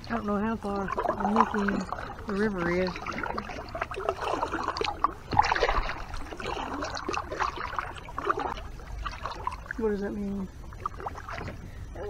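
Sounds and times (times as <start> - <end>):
kayak paddle strokes in water: 0.0 - 11.8
water splashes and drips: 0.0 - 11.8
paddle knock: 0.9 - 9.4.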